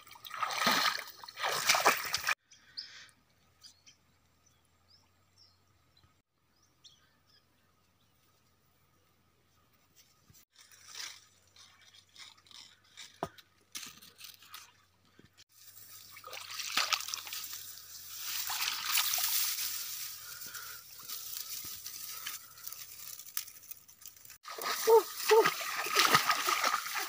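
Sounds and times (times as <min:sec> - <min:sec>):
reeds and grass rustling: 0:09.8 - 0:14.8, 0:15.5 - 0:27.0
water dripping and trickling: 0:15.6 - 0:27.0.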